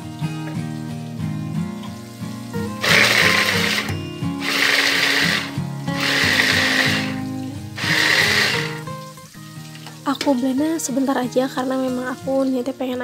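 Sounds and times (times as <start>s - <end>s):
background music: 0.0s - 13.0s
electric chopper blades whirring: 2.8s - 7.2s, 7.8s - 8.8s.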